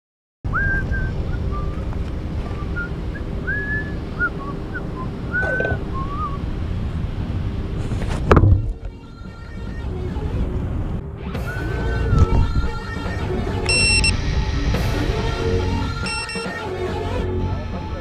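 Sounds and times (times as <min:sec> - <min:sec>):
whistled chirps: 0:00.5 - 0:01.8, 0:02.5 - 0:06.4
wind buffeting microphone: 0:00.5 - 0:09.0, 0:11.9 - 0:13.0
loud knock near microphone: 0:08.2 - 0:08.8.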